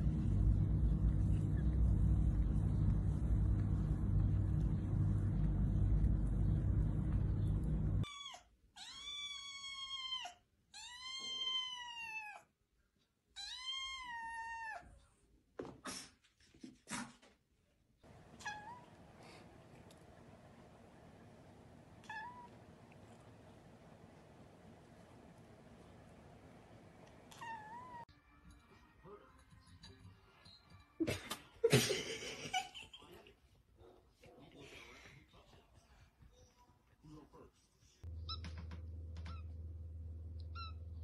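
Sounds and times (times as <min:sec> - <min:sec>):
loud low rumble: 0:00.0 - 0:08.0
kitten meowing: 0:18.3 - 0:19.0, 0:22.0 - 0:22.6, 0:27.3 - 0:28.0.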